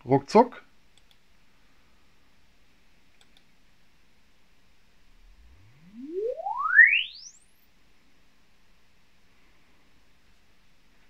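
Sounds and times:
rising sine sweep tone: 0:05.0 - 0:07.7.

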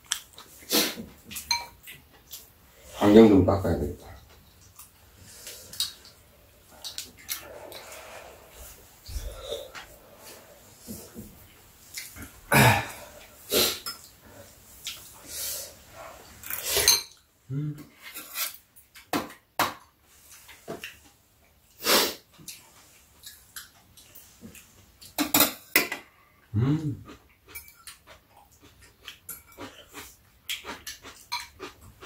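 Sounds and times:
utensils clinking against bowls: 0:01.3 - 0:02.0
people slurping soup: 0:05.2 - 0:11.2, 0:12.0 - 0:17.0.

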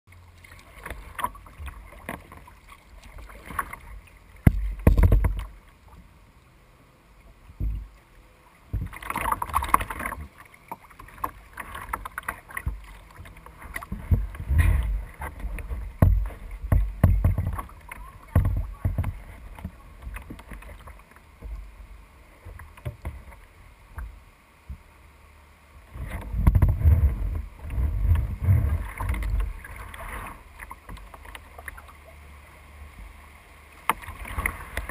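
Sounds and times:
water splashing against kayak hull: 0:00.1 - 0:06.4, 0:07.2 - 0:24.9, 0:25.8 - 0:34.9
low knocks and rumbles: 0:04.4 - 0:05.5, 0:13.8 - 0:20.6, 0:26.1 - 0:29.6.

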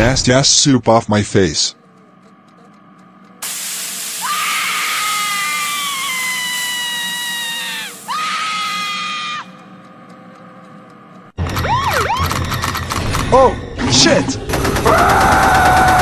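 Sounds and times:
hissy rush of noise: 0:03.4 - 0:08.8
woman screaming: 0:04.2 - 0:09.5, 0:14.9 - 0:16.0.

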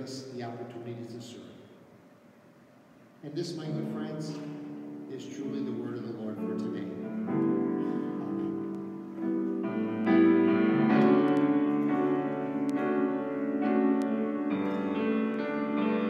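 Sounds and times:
grand piano chords: 0:03.2 - 0:16.0.

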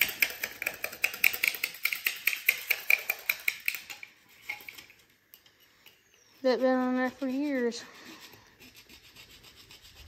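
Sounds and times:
scraper scraping metal: 0:06.4 - 0:10.0.

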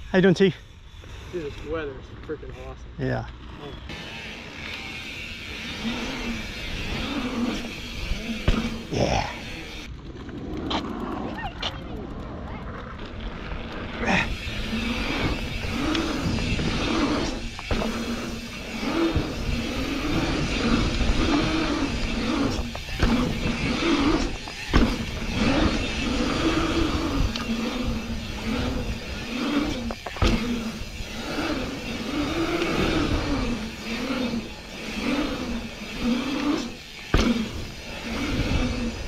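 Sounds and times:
bike tyres humming on pavement: 0:00.0 - 0:39.0
sharp knocks from bike: 0:08.4 - 0:08.8, 0:30.0 - 0:30.7, 0:37.1 - 0:37.6.

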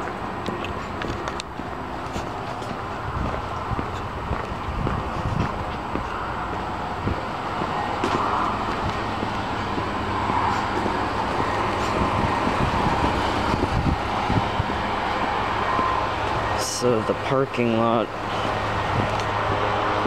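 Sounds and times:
footsteps on a path: 0:00.0 - 0:16.6
outdoor rushing noise: 0:00.0 - 0:20.0.

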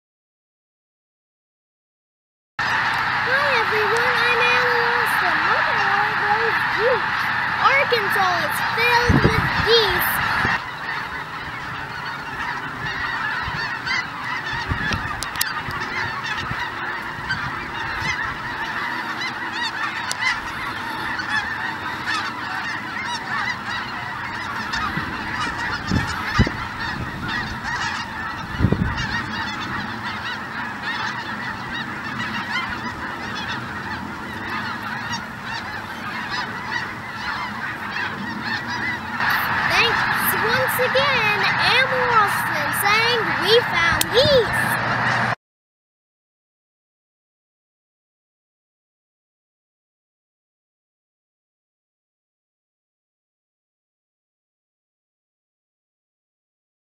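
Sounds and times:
flock of geese honking: 0:02.6 - 0:45.4.

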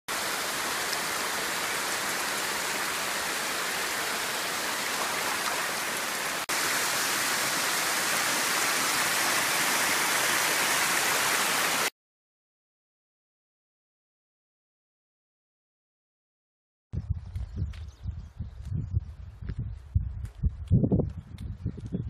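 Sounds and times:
stream cascading over rocks: 0:00.1 - 0:11.9.

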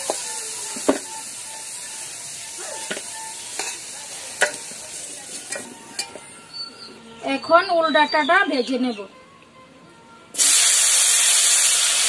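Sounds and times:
potato wedges sizzling in oil: 0:00.0 - 0:06.2, 0:10.4 - 0:12.0
metal spatula clinking on pan: 0:02.8 - 0:06.2.

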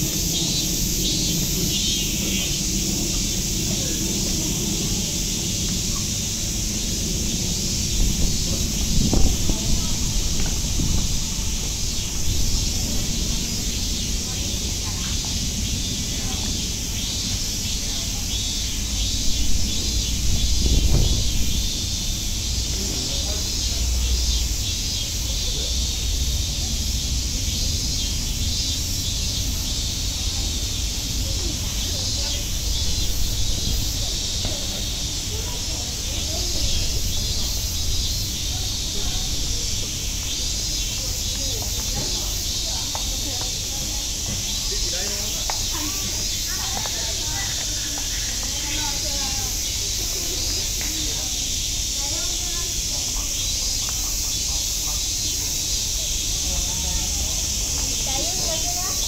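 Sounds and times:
cicadas singing: 0:00.0 - 0:59.0
low background rumble: 0:00.0 - 0:59.0
low bumps: 0:02.2 - 0:23.8.

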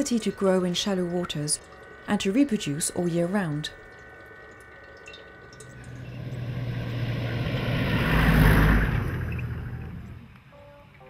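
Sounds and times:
vehicle driving past: 0:05.6 - 0:10.5.

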